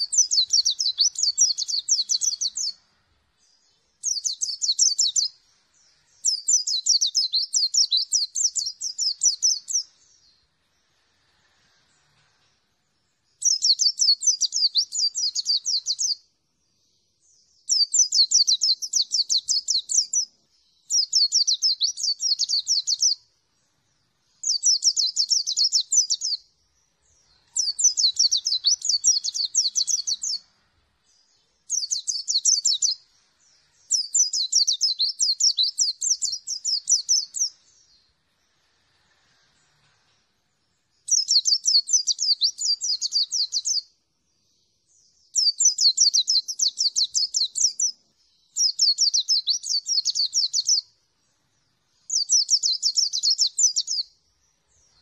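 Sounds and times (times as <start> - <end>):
bird high-pitched warbling song: 0.0 - 2.8, 4.0 - 5.4, 6.2 - 9.9, 13.4 - 16.2, 17.6 - 23.2, 24.4 - 26.4, 27.2 - 30.5, 31.7 - 33.0, 33.9 - 37.6, 41.1 - 43.9, 45.3 - 50.9, 52.0 - 54.1.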